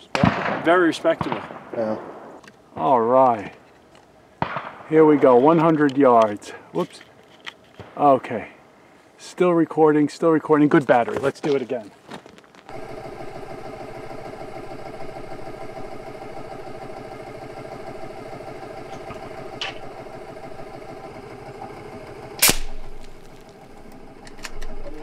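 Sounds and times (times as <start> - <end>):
air rifle shot: 0.1 - 2.4, 4.4 - 5.3, 22.4 - 23.3
steady mechanical drone: 12.7 - 25.0.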